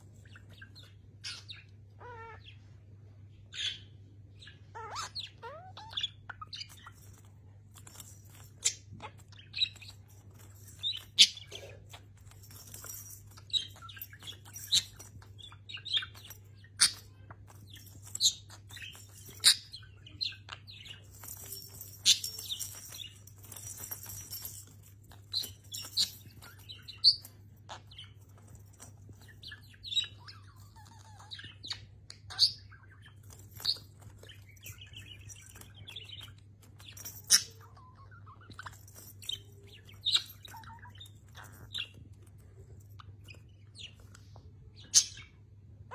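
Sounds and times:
budgerigar chirping: 0:01.2 - 0:02.5.

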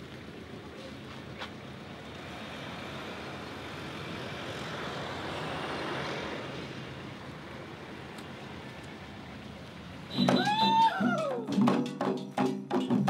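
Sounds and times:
vehicle passing: 0:01.9 - 0:09.8.

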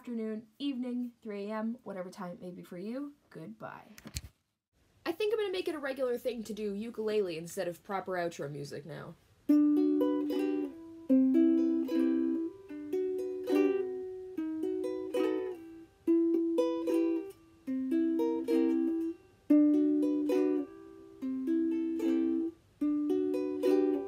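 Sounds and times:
ukulele strumming: 0:09.5 - 0:24.0.

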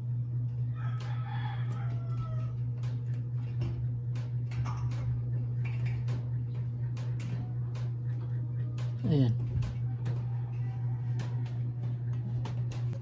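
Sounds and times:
steady low hum: 0:00.0 - 0:13.0
rooster crowing: 0:00.6 - 0:03.1, 0:09.8 - 0:12.1.

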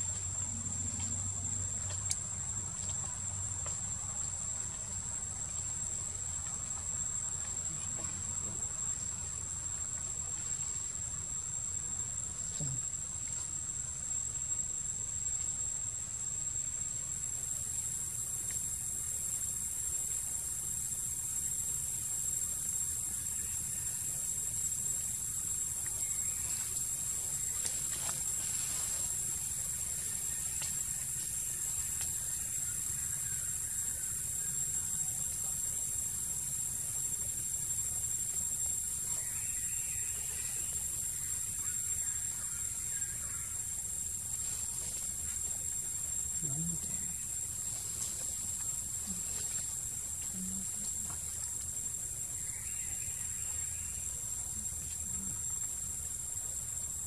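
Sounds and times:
high insect hiss: 0:00.0 - 0:57.0
insects droning: 0:00.0 - 0:57.0.

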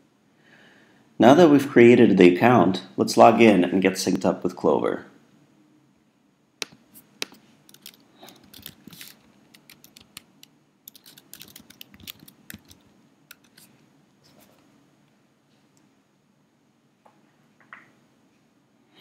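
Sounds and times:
typing on a computer keyboard: 0:06.6 - 0:13.6.

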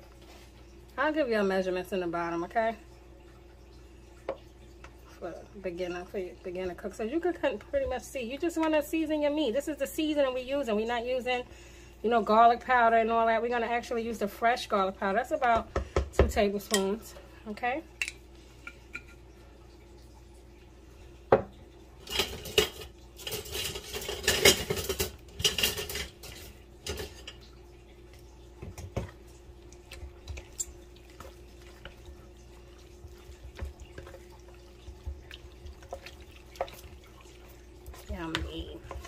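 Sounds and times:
faint steady hum: 0:00.0 - 0:39.0
dishes clattering and rattling: 0:21.3 - 0:27.5.

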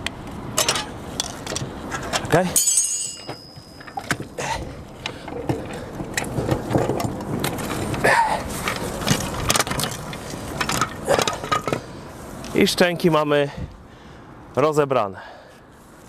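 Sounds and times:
metal clanks knocks and scraping: 0:00.6 - 0:08.0, 0:08.6 - 0:11.9.

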